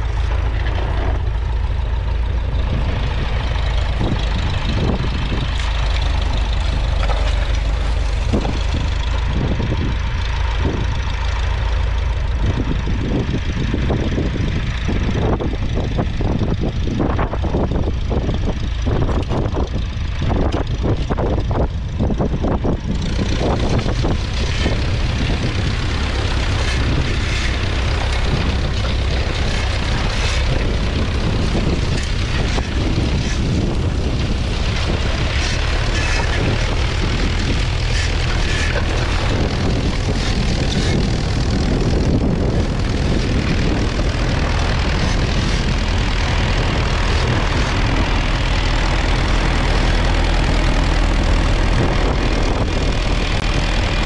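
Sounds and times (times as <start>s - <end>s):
knocks and rattles: 0.0s - 11.1s, 23.0s - 54.0s
diesel tractor engine under load: 0.0s - 54.0s.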